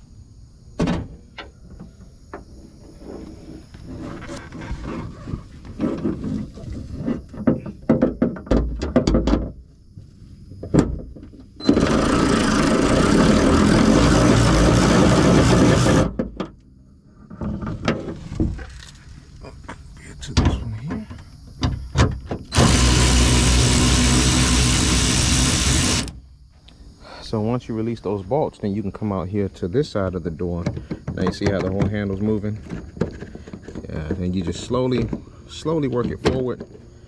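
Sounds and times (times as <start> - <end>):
power tool running: 11.6 - 16.2, 22.5 - 26.2.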